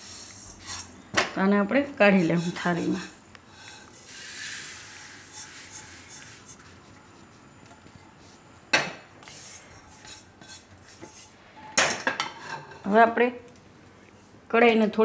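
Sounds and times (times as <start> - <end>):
seeds sliding onto a steel plate: 2.2 - 6.8.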